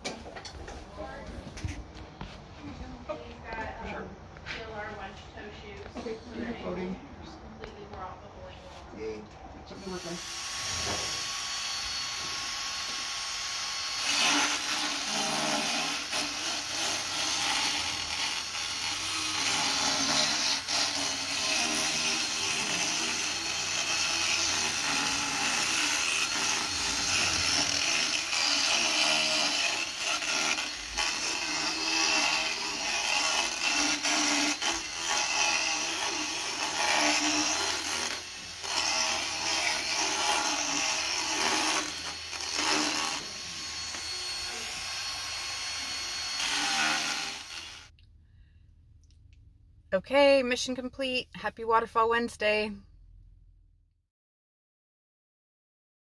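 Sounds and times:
power tool grinding teeth: 9.7 - 48.0.

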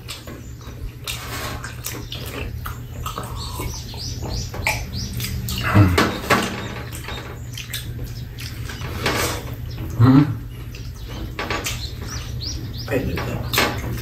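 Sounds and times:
chewing and lip smacks: 0.0 - 8.8, 9.8 - 12.5
person humming mm: 5.6 - 6.1.

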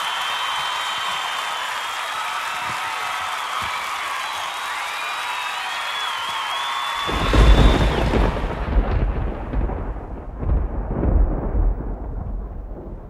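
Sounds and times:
thunder rumbling: 7.1 - 13.0.

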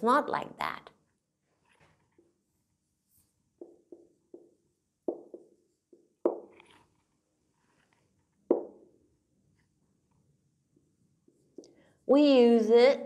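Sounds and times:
marker knocking on whiteboard: 3.6 - 6.6, 8.5 - 9.0.

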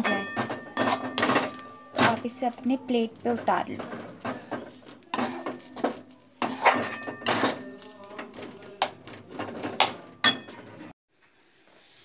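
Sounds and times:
metal spatula scraping steel pan: 0.0 - 10.9.

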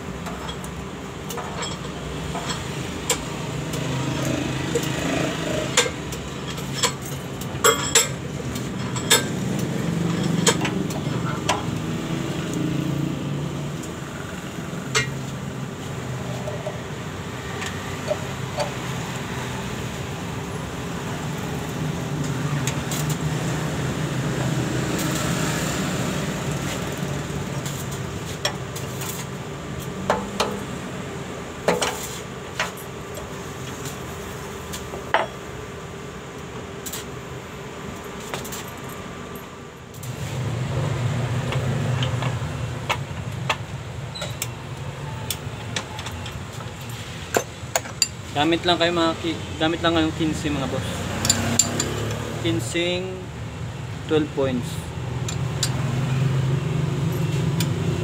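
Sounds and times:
wrench clinking on metal: 5.8 - 11.7, 51.2 - 52.2, 55.2 - 55.8.

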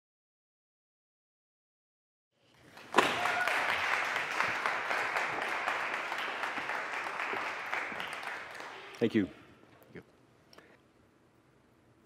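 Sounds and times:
audience applauding: 2.7 - 9.3.

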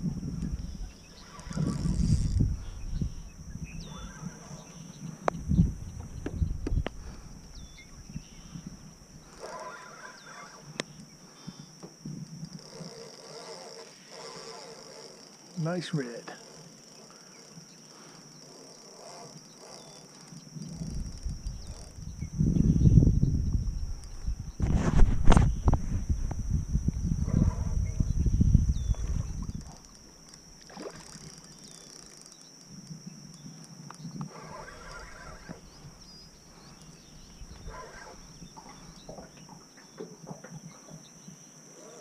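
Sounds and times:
wind buffeting microphone: 0.0 - 9.4, 20.5 - 29.9
high-pitched insect buzzing: 0.0 - 42.0
fishing reel clicks and rustles: 0.4 - 3.3, 8.4 - 22.2, 23.7 - 26.5, 28.9 - 39.4.

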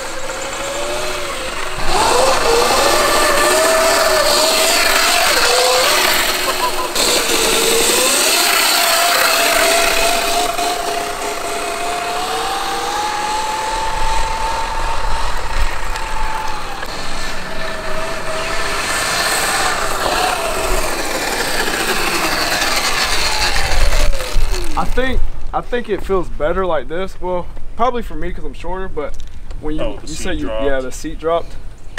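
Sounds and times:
electric motor whine: 0.0 - 25.0.

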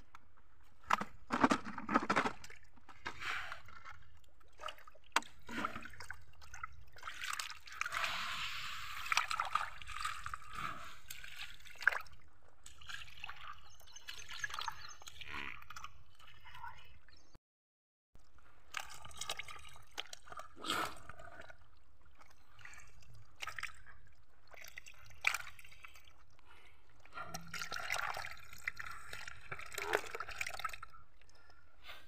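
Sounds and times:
water splashing from fish: 4.4 - 16.4, 27.4 - 30.9.

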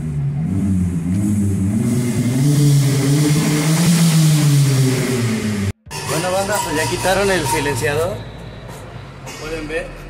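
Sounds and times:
car engine revving loudly: 0.0 - 5.8.

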